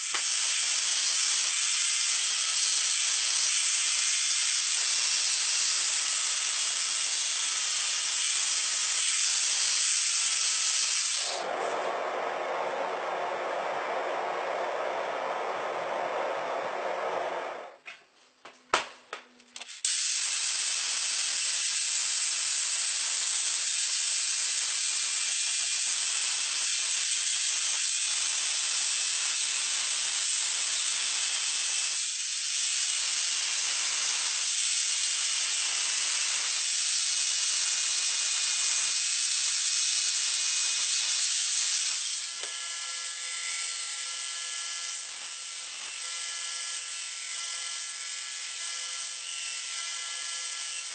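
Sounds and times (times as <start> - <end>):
belt grinder running: 0.0 - 11.5, 19.6 - 50.9
hot steel hissing in quench tank: 0.0 - 11.8, 19.8 - 42.5.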